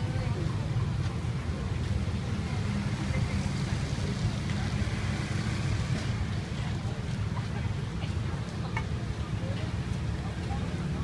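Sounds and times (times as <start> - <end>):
faint voices: 0.0 - 11.0
street traffic rumble: 0.0 - 11.0.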